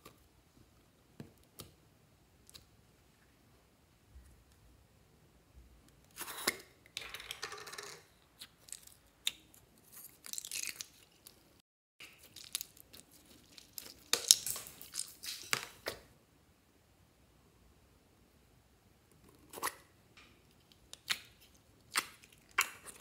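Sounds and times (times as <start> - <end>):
slime squishing and crackling: 12.0 - 15.8.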